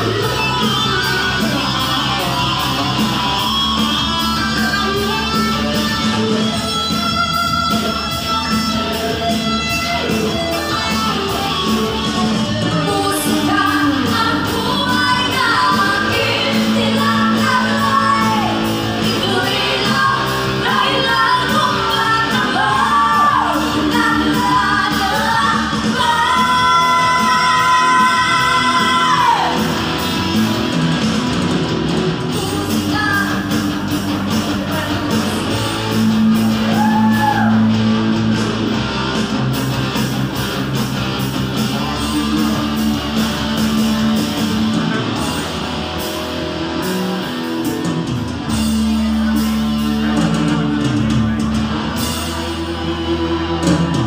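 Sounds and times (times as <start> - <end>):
live pop-rock band: 0.0 - 54.0
woman singing: 12.8 - 29.6, 32.3 - 33.6.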